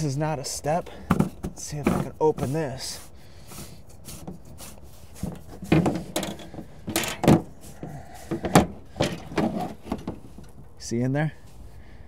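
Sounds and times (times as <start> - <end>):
battery box cover clunking: 1.0 - 2.1, 5.7 - 7.6, 8.3 - 10.6
latch and lid rattling: 5.7 - 7.5, 8.3 - 10.6.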